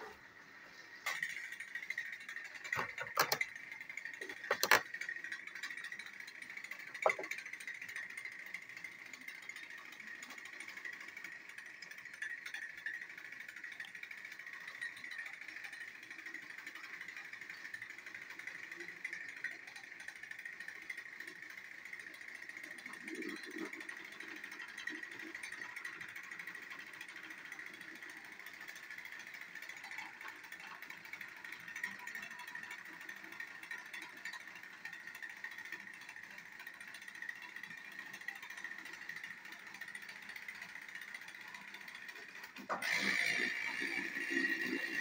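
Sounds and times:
toy train motors whirring: 0.0 - 45.0
gear rattle: 1.0 - 45.0.

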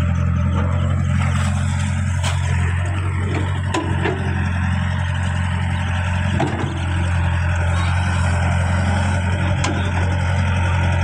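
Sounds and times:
bucket working wet mud: 0.0 - 11.0
excavator diesel engine running: 0.0 - 11.0.

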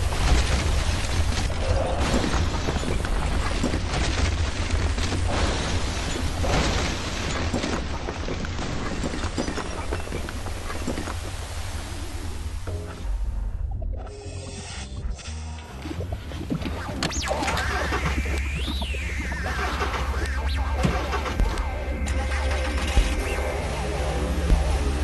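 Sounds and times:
crashes and clattering debris: 0.0 - 11.3
heavy low rumble: 14.9 - 25.0.

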